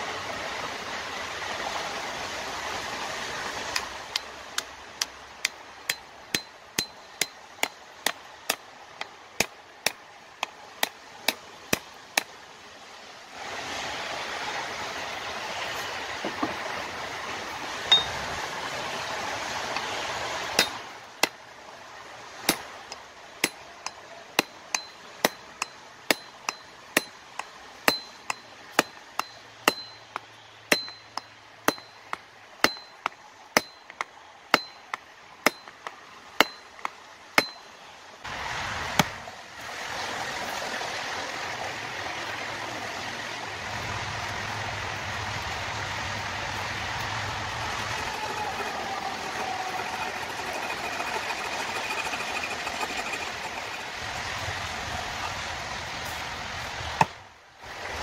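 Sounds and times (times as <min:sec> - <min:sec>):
hammer blows with metallic ring: 0:05.9 - 0:07.8, 0:17.9 - 0:18.2, 0:23.4 - 0:34.0.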